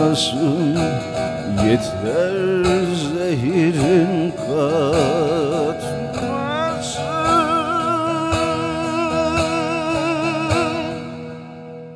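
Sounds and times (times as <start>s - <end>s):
long-necked lute strummed: 0.0s - 11.9s
man singing a long note: 1.5s - 11.1s.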